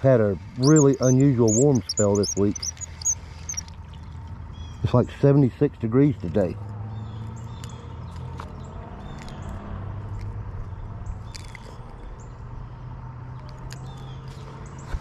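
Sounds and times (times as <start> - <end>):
steady low hum: 0.0 - 4.6
small birds chirping: 0.0 - 5.2, 6.0 - 15.0.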